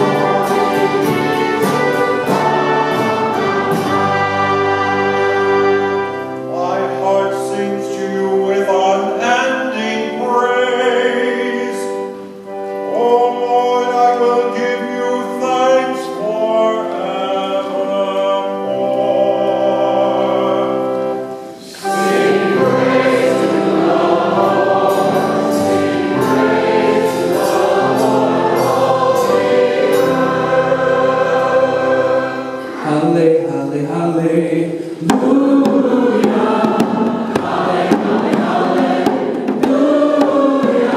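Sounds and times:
small band playing: 0.0 - 7.9, 20.6 - 33.2, 34.9 - 40.9
church choir singing a hymn: 0.0 - 40.9
pipe organ: 0.0 - 40.9.

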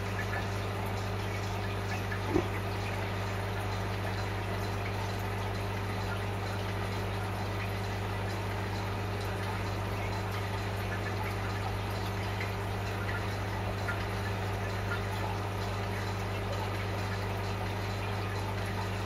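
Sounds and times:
aquarium filter humming: 0.0 - 19.0
water trickling and dripping: 0.0 - 19.0.

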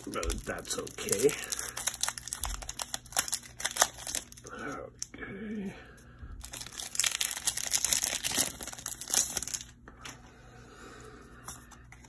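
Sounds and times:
foil wrapper tearing and crinkling: 0.0 - 4.6, 6.4 - 9.8.

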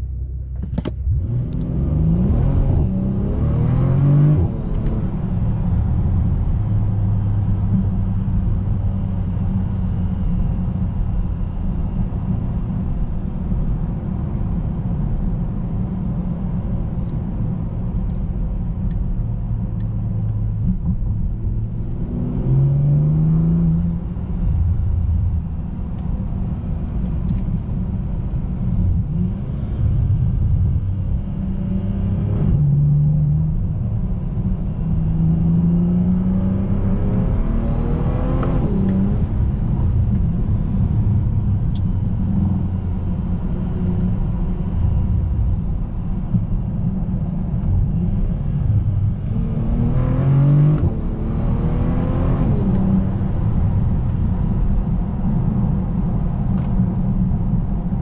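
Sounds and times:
car engine and road rumble: 0.0 - 58.0.

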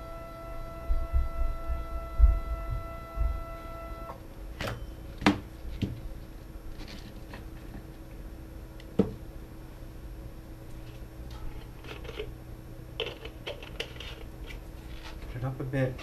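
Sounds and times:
stepper motor whining: 0.0 - 4.2
low hum: 0.0 - 13.0.

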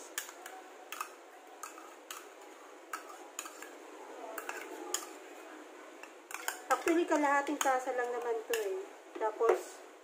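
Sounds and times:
metal spoon scraping ceramic bowl: 3.0 - 3.8.

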